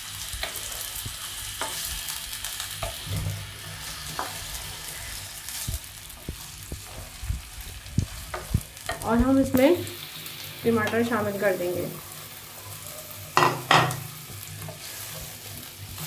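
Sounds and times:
chicken and onions sizzling in oil: 0:00.0 - 0:16.0
wooden spoon knocking on pan: 0:13.4 - 0:14.0.

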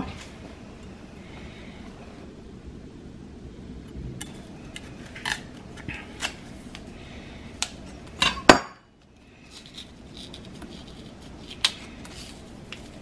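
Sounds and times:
knife scraping root peel: 0:09.4 - 0:13.0.

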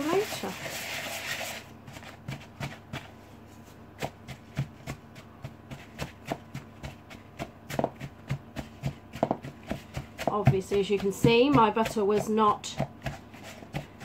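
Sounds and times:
wooden spoon knocking in plastic bowl: 0:04.0 - 0:14.0.

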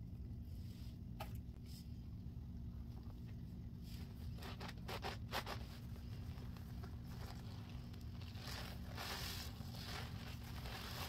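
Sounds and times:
wet sponge squishing: 0:03.9 - 0:11.0.

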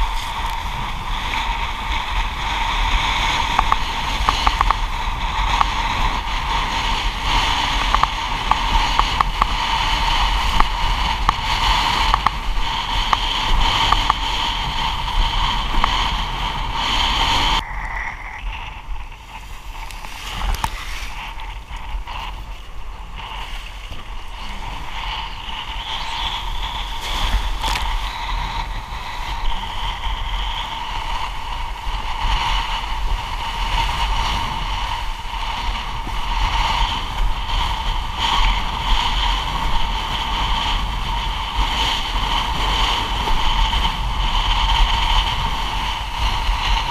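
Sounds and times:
rush of wind and water: 0:00.0 - 0:46.9.

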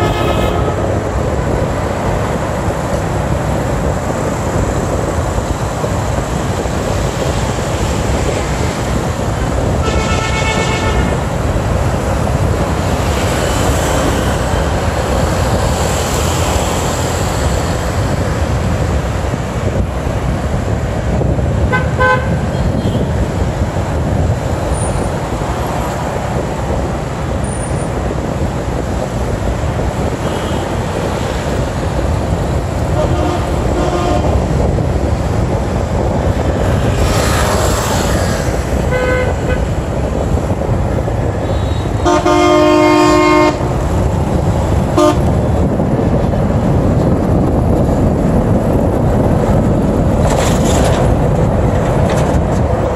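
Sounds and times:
vehicle horn: 0:00.0 - 0:01.1, 0:09.8 - 0:11.2, 0:21.7 - 0:23.1, 0:30.2 - 0:30.8, 0:33.0 - 0:34.4, 0:38.9 - 0:39.7, 0:41.4 - 0:43.8, 0:45.0 - 0:45.3
wind noise: 0:00.0 - 0:52.9.

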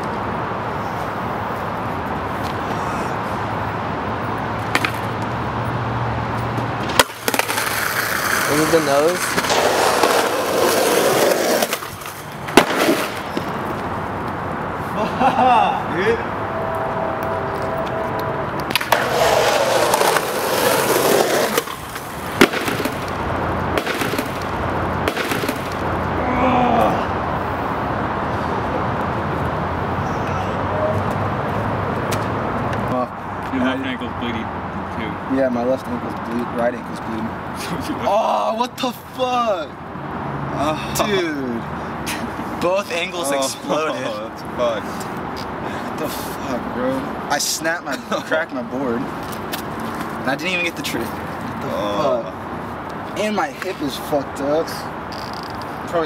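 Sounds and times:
skateboard wheels rolling on concrete: 0:00.0 - 0:15.2, 0:17.5 - 0:29.9, 0:42.2 - 0:56.0
skateboard knocking on pavement: 0:04.7 - 0:05.2, 0:06.8 - 0:13.6, 0:18.6 - 0:25.8
skateboard clacks and knocks: 0:06.9 - 0:08.5, 0:18.7 - 0:23.1.

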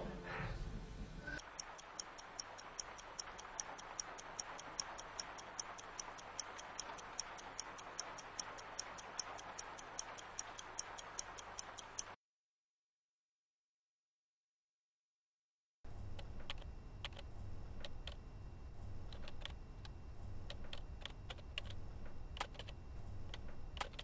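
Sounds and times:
clock ticking quickly: 0:01.4 - 0:12.2, 0:18.8 - 0:24.0.

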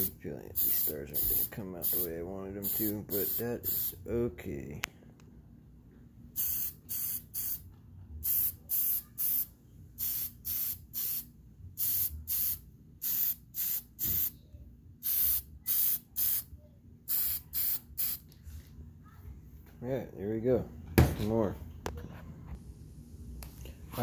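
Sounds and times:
spray paint can hissing: 0:00.6 - 0:03.9, 0:06.4 - 0:07.6, 0:08.2 - 0:14.3, 0:15.0 - 0:16.4, 0:17.1 - 0:18.2.

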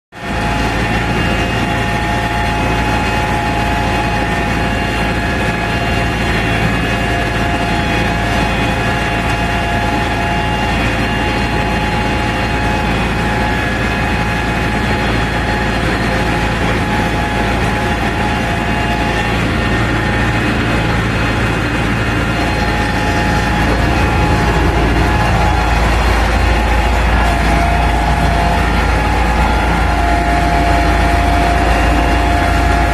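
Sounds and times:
tractor diesel engine drone: 0:00.1 - 0:32.9.

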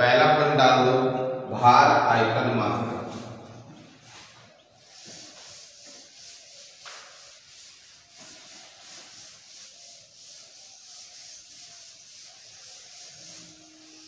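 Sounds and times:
duster rubbing chalkboard: 0:02.7 - 0:14.0.

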